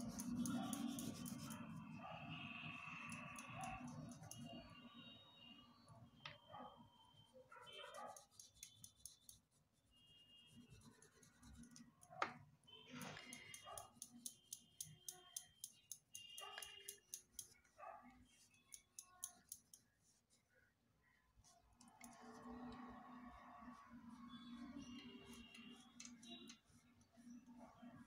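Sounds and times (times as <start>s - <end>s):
oil pastel scratching on paper: 0.0s - 2.4s, 7.6s - 12.2s, 16.2s - 20.6s, 21.4s - 28.0s.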